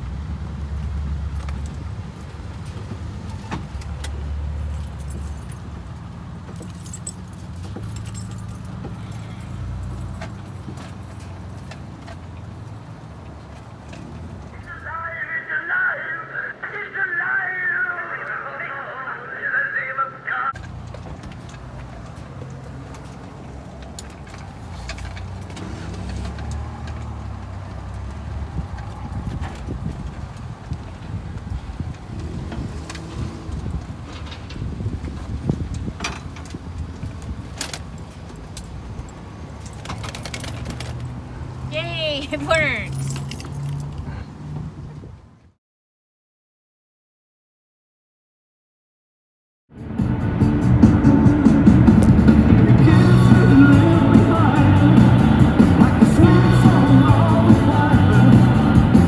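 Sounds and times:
metallic rattling and clicks: 0:35.7 - 0:41.2.

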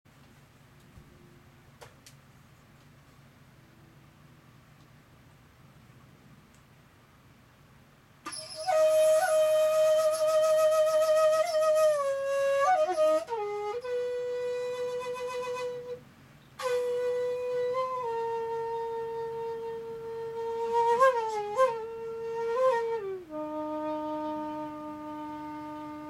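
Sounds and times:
bamboo flute melody: 0:08.2 - 0:16.0, 0:16.6 - 0:26.0.

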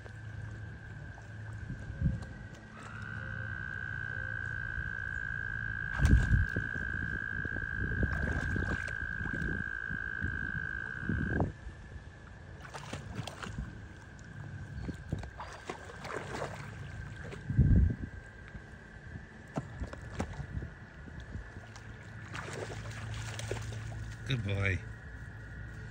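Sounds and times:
dog splashing in water: 0:05.9 - 0:06.6, 0:08.0 - 0:09.4, 0:12.6 - 0:13.8, 0:15.1 - 0:17.5, 0:21.6 - 0:24.3.

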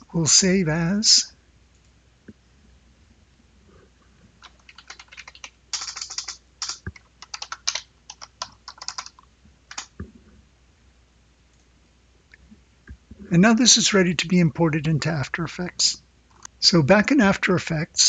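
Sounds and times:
keyboard key clicks: 0:04.4 - 0:10.0.

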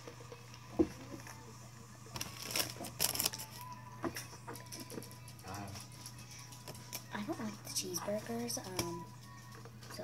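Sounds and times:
paper wrapper rustling: 0:02.1 - 0:03.7.

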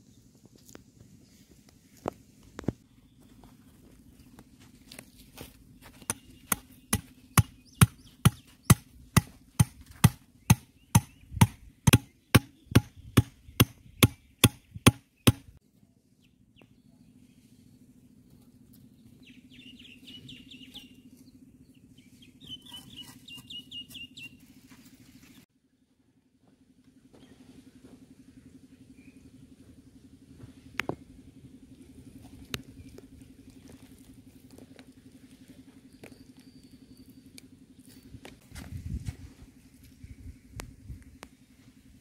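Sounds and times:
bird chirping: 0:05.9 - 0:08.8, 0:19.1 - 0:24.4
stake being hammered into soil: 0:06.1 - 0:15.5.

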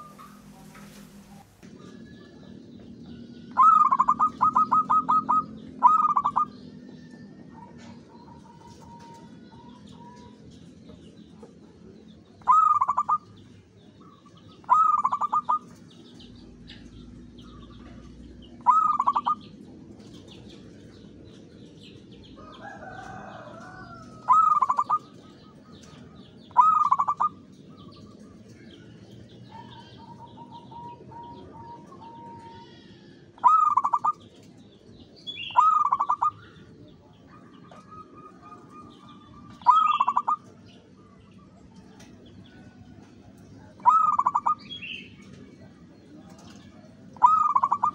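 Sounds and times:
dove cooing: 0:00.0 - 0:02.6, 0:03.5 - 0:10.4, 0:12.4 - 0:13.4, 0:14.0 - 0:16.0, 0:17.5 - 0:20.9, 0:22.4 - 0:28.6, 0:29.4 - 0:34.5, 0:35.4 - 0:40.6, 0:43.6 - 0:45.5, 0:46.2 - 0:47.9
faint chirps of small birds: 0:00.0 - 0:47.9.

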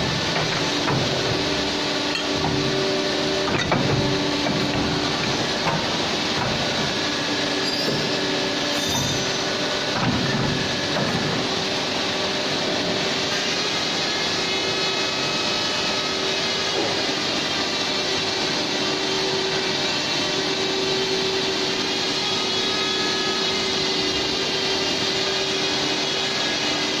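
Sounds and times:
hydraulic pump humming and hissing: 0:00.0 - 0:27.0.

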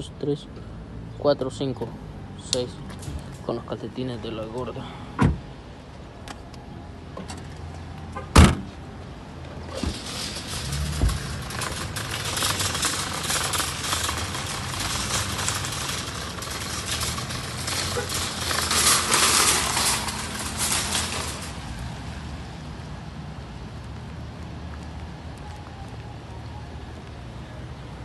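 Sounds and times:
shopping cart rattling on asphalt: 0:09.6 - 0:22.2.

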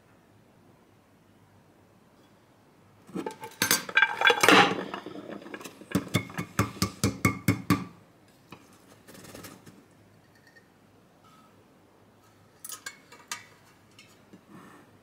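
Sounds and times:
glass plate clattering on steel pot: 0:03.2 - 0:06.7.

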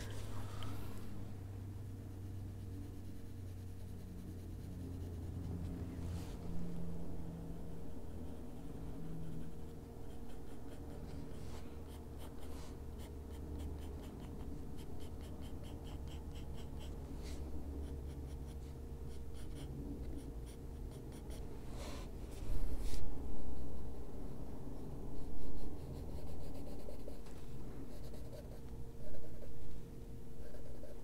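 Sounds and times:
low hum: 0:00.0 - 0:31.0
pencil scratching on paper: 0:01.9 - 0:06.4, 0:08.0 - 0:23.8, 0:25.2 - 0:27.3, 0:27.9 - 0:29.5, 0:30.4 - 0:31.0.

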